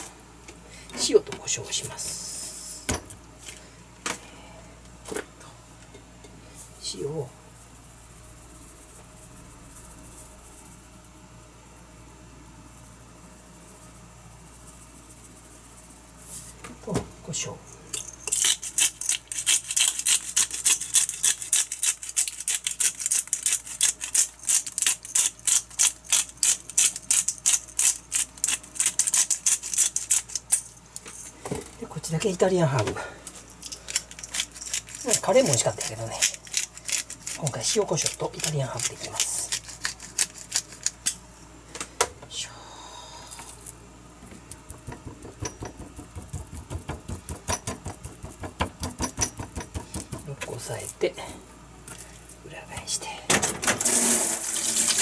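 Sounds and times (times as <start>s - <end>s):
shaker rattling grains: 6.6s - 16.6s, 17.8s - 31.4s, 33.3s - 41.2s, 53.8s - 55.0s.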